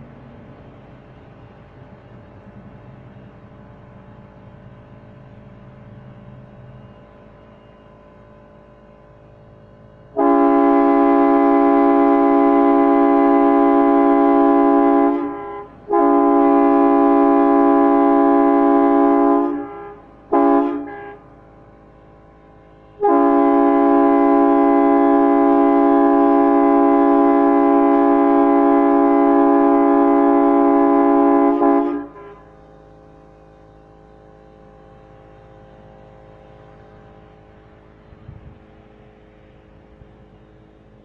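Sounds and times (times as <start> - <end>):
air horn chord blasts: 10.2 - 21.3, 23.0 - 32.7.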